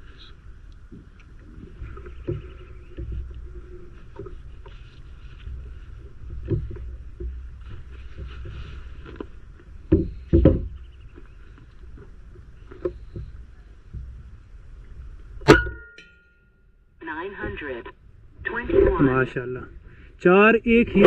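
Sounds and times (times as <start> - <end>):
low outdoor rumble: 0.0 - 21.0
dull knocks: 6.2 - 8.8, 9.8 - 11.2.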